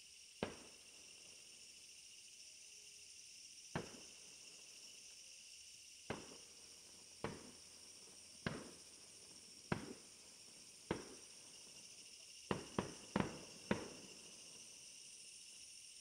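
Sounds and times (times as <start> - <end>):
fireworks bursting: 6.1 - 11.8, 12.5 - 14.3.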